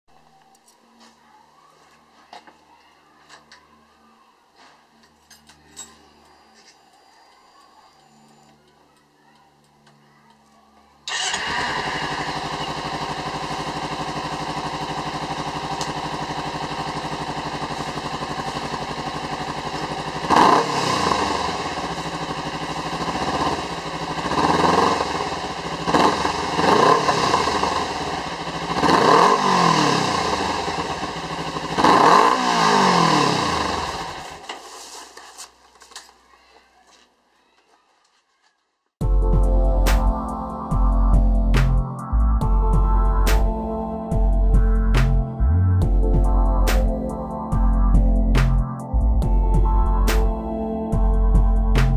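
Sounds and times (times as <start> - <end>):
motorcycle engine idling and revving: 11.1 - 34.7, 39.0 - 51.9.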